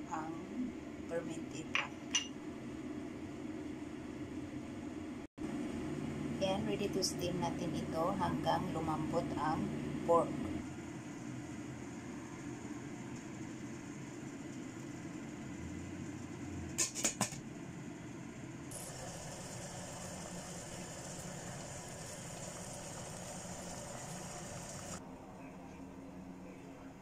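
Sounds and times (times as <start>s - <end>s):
hiss of steam and boiling water: 18.7s - 25.0s.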